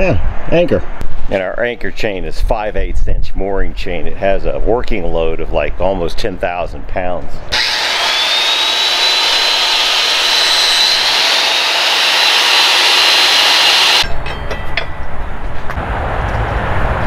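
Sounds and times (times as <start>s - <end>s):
cutter hissing in metal: 7.5s - 14.0s
drill motor whining: 7.5s - 14.0s.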